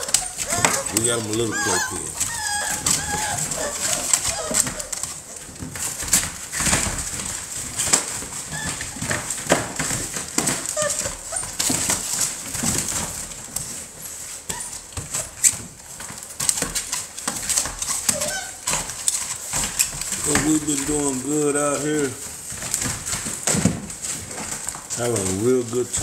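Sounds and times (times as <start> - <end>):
puppy yips: 0.0 - 5.4, 8.5 - 9.1, 10.4 - 12.0, 17.8 - 19.0
puppies scuffling in wood shavings: 0.0 - 26.0.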